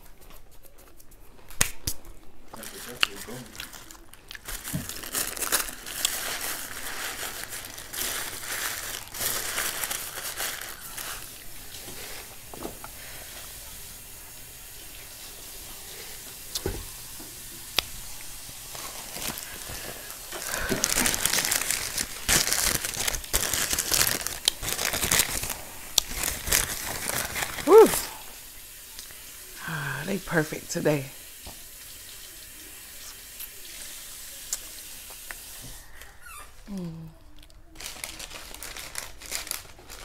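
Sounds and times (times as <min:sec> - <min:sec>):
paper wrapping crinkling: 0:00.0 - 0:12.6, 0:18.3 - 0:28.2, 0:37.4 - 0:40.0.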